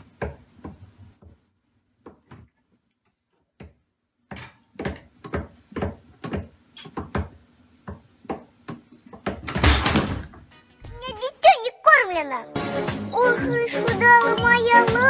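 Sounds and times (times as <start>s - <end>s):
pots and lids clattering: 9.3s - 10.3s.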